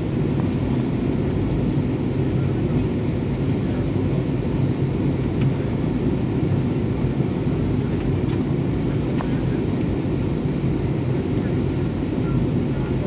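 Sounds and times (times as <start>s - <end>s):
aircraft engine rumble in cabin: 0.0s - 13.0s.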